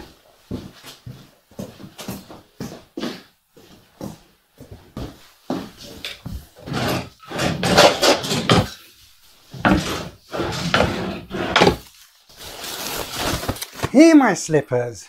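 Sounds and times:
wooden cupboard doors and drawers: 0:05.8 - 0:08.9, 0:09.5 - 0:11.9
rummaging rustles: 0:11.6 - 0:14.2.

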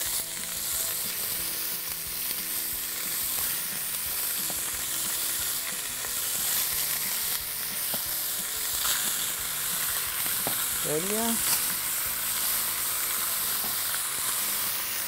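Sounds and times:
meat sizzling in hot oil: 0:00.0 - 0:15.0.

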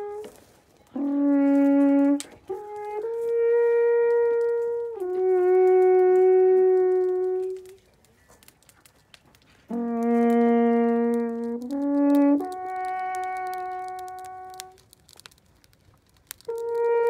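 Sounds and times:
alphorn playing long notes: 0:00.0 - 0:07.8, 0:09.7 - 0:14.8, 0:16.4 - 0:17.0.

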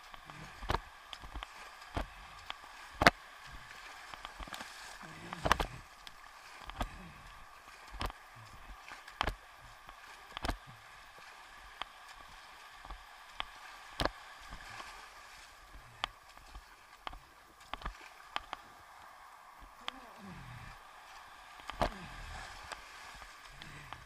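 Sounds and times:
paddle knocks and water slaps: 0:02.9 - 0:05.8, 0:12.8 - 0:14.9.

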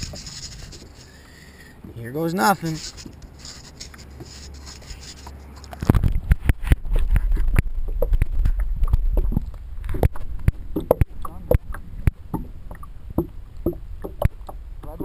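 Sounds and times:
muffled underwater rumble: 0:00.0 - 0:02.0, 0:05.7 - 0:15.0.

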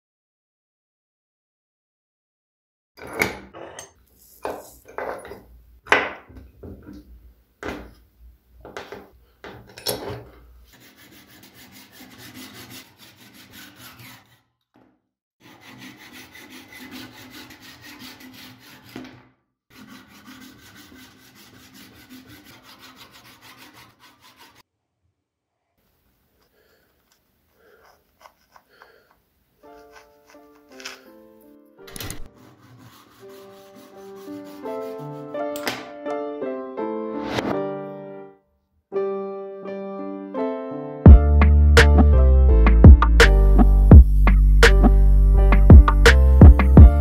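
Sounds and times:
hand saw cutting wood: 0:10.7 - 0:14.6, 0:15.4 - 0:24.7, 0:27.6 - 0:29.0, 0:29.6 - 0:31.2, 0:31.9 - 0:35.8.

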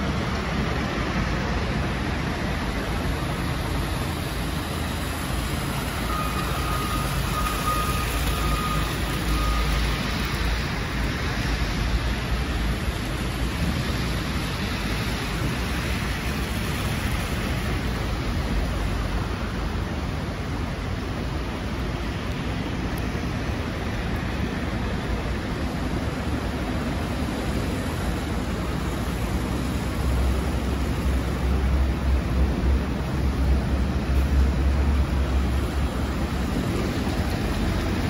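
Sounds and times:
tyres hissing on wet slush: 0:02.9 - 0:19.4.

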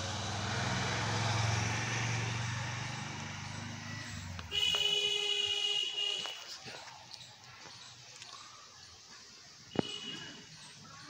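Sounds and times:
vehicle engine rumble passing: 0:00.0 - 0:05.1
vehicle horn blast: 0:04.5 - 0:06.4, 0:09.7 - 0:10.4.

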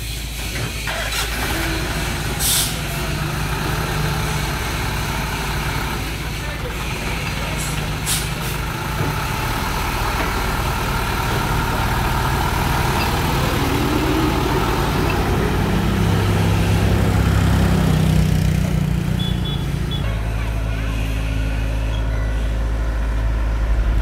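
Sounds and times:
diesel engine running: 0:00.0 - 0:24.0.

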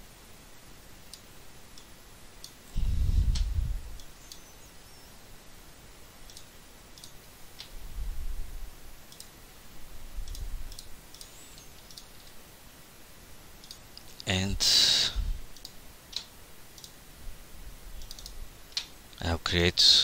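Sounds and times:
low muffled bumps: 0:02.8 - 0:04.0
computer mouse clicking: 0:06.2 - 0:07.8, 0:09.1 - 0:09.3, 0:10.2 - 0:12.4, 0:13.6 - 0:14.3, 0:15.5 - 0:17.0, 0:18.0 - 0:18.9.

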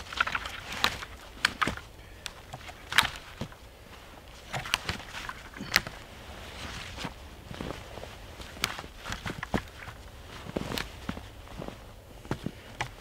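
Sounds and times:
sharp cracks of wood: 0:00.0 - 0:03.6, 0:04.4 - 0:06.1, 0:08.4 - 0:11.2
branches rustling and snapping: 0:00.0 - 0:13.0
footsteps crunching in snow: 0:03.0 - 0:13.0.

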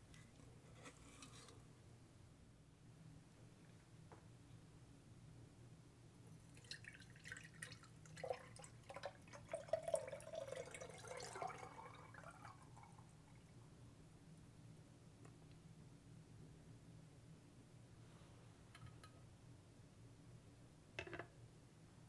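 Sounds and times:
liquid trickling through strainer: 0:06.5 - 0:13.0.

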